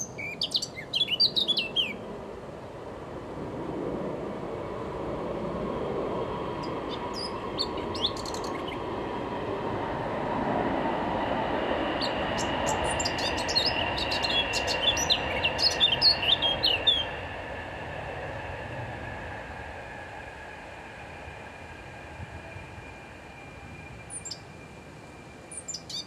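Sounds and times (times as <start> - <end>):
bird singing warbling phrases: 0.0 - 2.0, 6.9 - 8.8, 12.0 - 17.2, 25.6 - 26.0.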